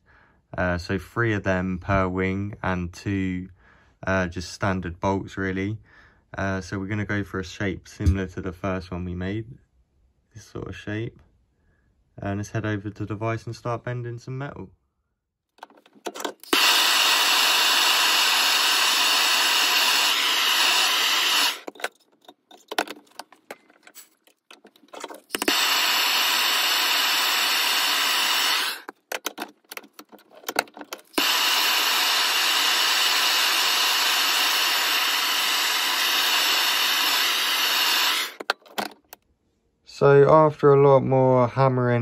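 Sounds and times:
blowtorch hissing: 16.5 - 21.7, 25.5 - 28.9, 31.2 - 38.4.

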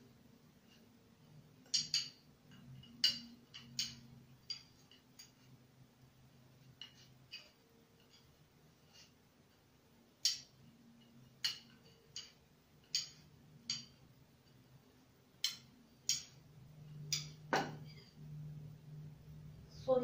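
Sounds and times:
knitting needles clicking: 1.6 - 5.5, 6.6 - 8.3, 10.2 - 14.7, 15.4 - 16.4.

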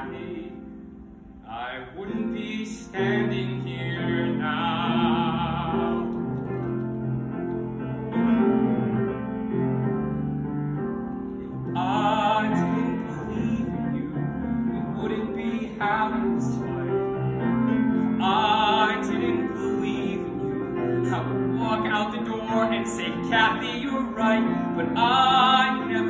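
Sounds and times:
man singing with vibrato: 0.0 - 0.8, 1.4 - 6.8, 11.4 - 17.4, 18.0 - 26.0
piano accompaniment: 0.0 - 26.0.

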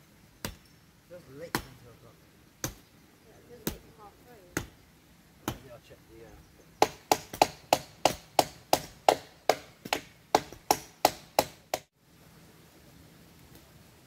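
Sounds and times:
axe chopping wood: 1.5 - 1.8, 2.6 - 2.9, 3.6 - 3.9, 4.5 - 4.8, 5.4 - 5.7, 6.8 - 11.9.

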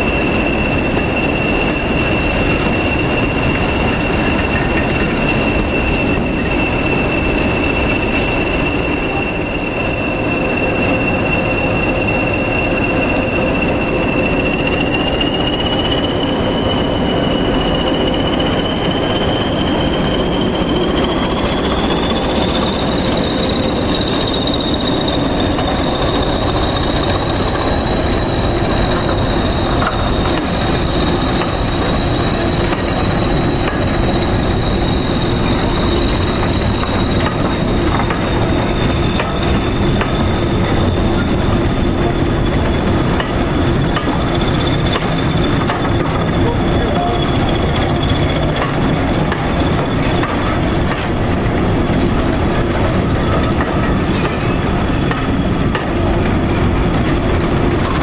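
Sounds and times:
high whine rising in pitch: 0.0 - 42.0
train engine and wheels rumbling: 0.0 - 58.0.

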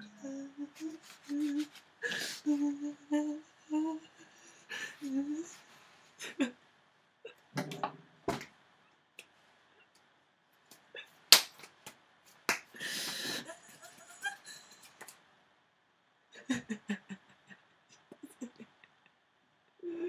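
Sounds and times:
hands slapping and rubbing: 0.8 - 1.9, 10.7 - 13.2, 14.8 - 15.2.

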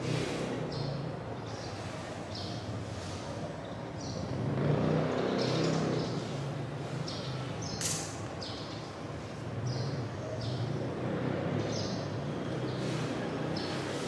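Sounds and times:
distant traffic rumble: 0.0 - 14.0
sharp click: 7.8 - 8.3.

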